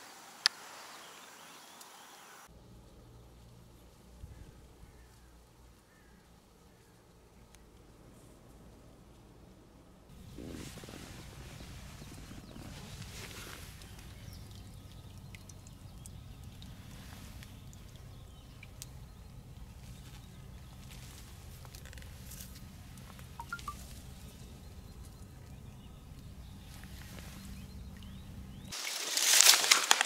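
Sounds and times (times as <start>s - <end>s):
faint ticks: 13.6s - 20.2s
short faint chirps: 23.4s - 23.8s.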